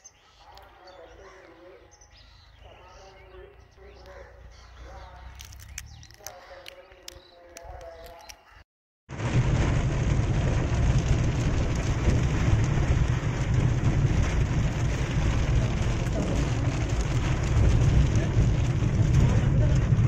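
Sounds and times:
deep rumble: 9.1 - 20.0
heavy rain hissing: 9.2 - 20.0.

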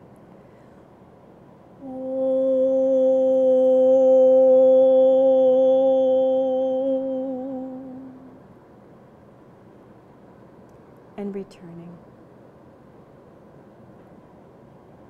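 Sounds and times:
woman holding a steady vowel: 1.8 - 8.4.

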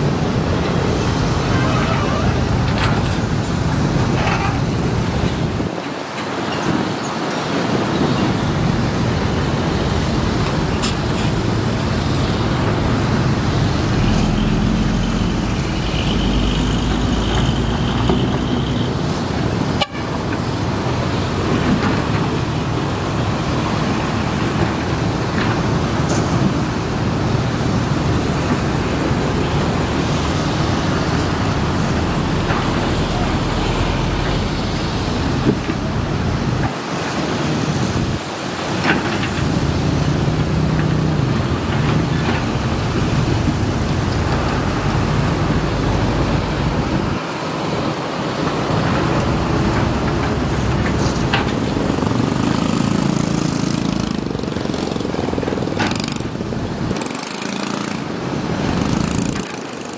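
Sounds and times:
excavator diesel engine: 0.0 - 6.5, 8.1 - 59.9
construction site and traffic noise: 0.0 - 59.9.

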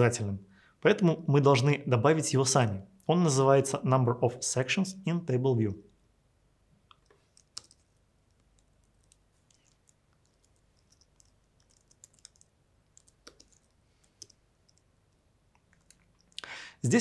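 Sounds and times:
faint keyboard typing: 6.8 - 16.4.

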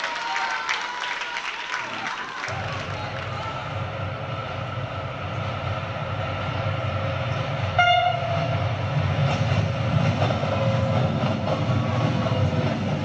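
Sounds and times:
passenger train rumble: 1.9 - 13.0
short train horn: 7.8 - 8.6.

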